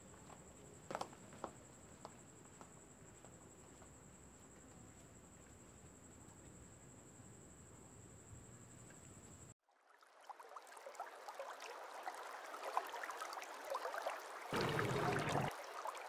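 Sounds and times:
water rush: 0:10.2 - 0:16.0
water lapping on rocky shore: 0:14.5 - 0:15.7.

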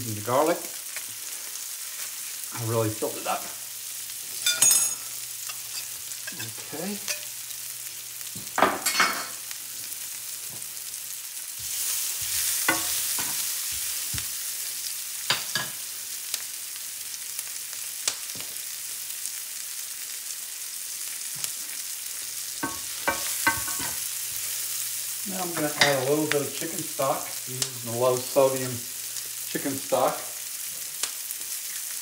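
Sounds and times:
vegetables sizzling in a skillet: 0:00.0 - 0:32.0.

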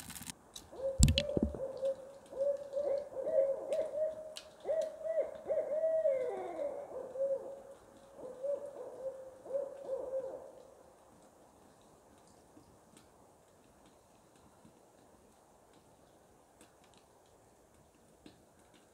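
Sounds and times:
owl hooting: 0:00.7 - 0:10.6
drawn-out falling owl call: 0:00.7 - 0:10.7.

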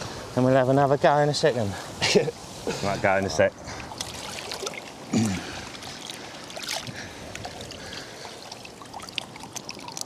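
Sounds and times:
water lapping and sloshing: 0:03.6 - 0:10.0.

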